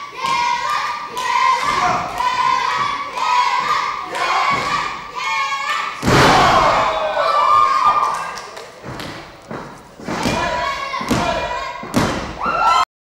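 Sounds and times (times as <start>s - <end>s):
spectators shouting and chanting: 0.0s - 8.3s, 10.2s - 12.8s
body slammed onto ring mat: 6.0s - 6.8s.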